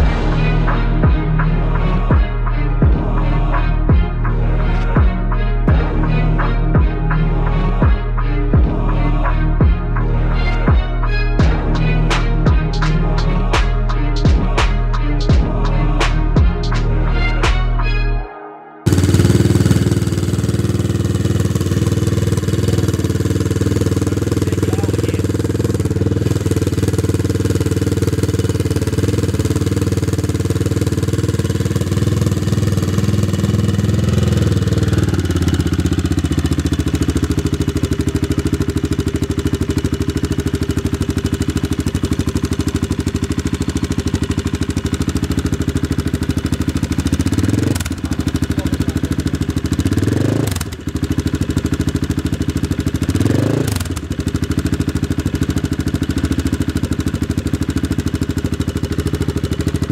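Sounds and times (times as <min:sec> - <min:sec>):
motorcycle engine idling: 0:18.9 - 0:59.9.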